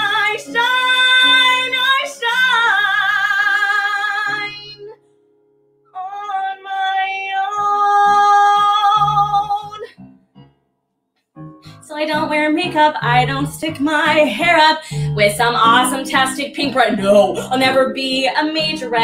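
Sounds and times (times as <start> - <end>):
woman singing with vibrato: 0.0 - 4.9, 6.0 - 9.9, 11.8 - 19.0
backing track music: 11.4 - 19.0.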